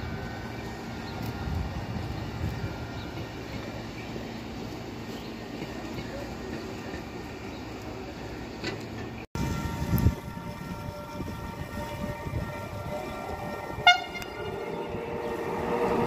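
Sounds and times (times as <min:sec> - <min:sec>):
distant train rumble: 0:00.0 - 0:16.0
electric locomotive whine: 0:00.0 - 0:16.0
train horn toot: 0:09.4 - 0:16.0.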